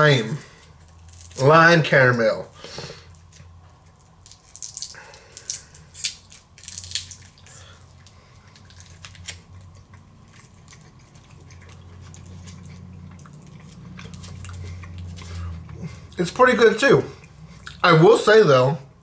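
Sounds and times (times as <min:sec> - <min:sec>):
plastic candy wrapper crinkling: 0:00.0 - 0:01.6, 0:03.1 - 0:09.8.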